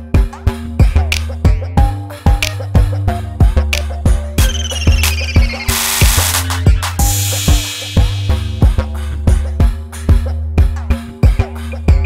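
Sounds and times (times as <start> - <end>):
deep bass line: 0.0 - 12.0
steady drum beat: 4.4 - 11.4.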